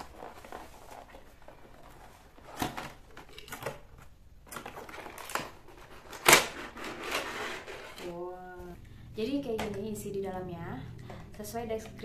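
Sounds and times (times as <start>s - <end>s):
cardboard rustling and scraping: 0.0s - 8.4s.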